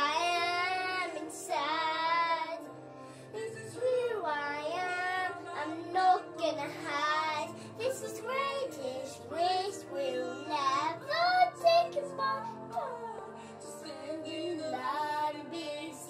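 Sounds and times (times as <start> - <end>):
backing track music: 0.0 - 16.0
boy singing: 3.6 - 13.2.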